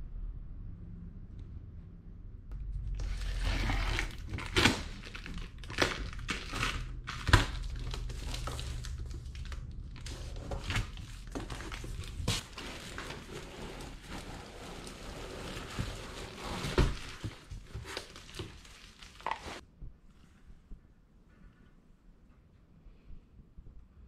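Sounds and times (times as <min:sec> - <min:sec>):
plastic wrapping crinkling: 0:02.8 - 0:19.6
cardboard flaps tearing: 0:03.0 - 0:19.6.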